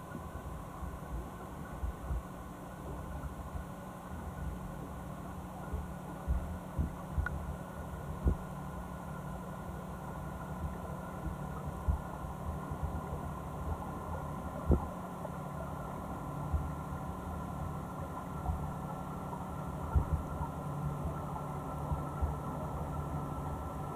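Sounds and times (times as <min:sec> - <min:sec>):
low underwater hum: 0:00.0 - 0:23.9
dull underwater knocks: 0:06.2 - 0:07.4, 0:08.2 - 0:08.5, 0:14.6 - 0:15.1, 0:19.8 - 0:21.3.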